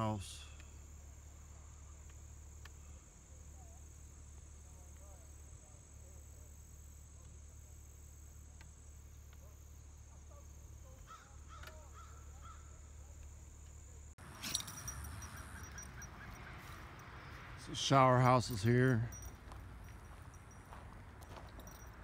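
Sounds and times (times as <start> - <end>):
high insect drone: 0.0 - 22.0
bird calling: 10.8 - 13.0, 14.4 - 17.4.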